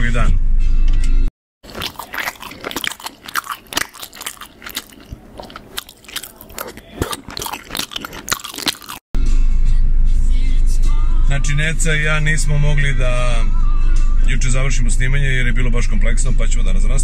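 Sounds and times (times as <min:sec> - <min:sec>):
gum chewing wet smacks: 0:01.6 - 0:09.0.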